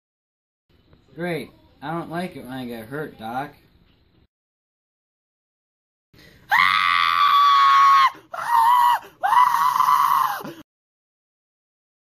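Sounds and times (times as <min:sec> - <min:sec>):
person screaming: 0:06.5 - 0:10.6.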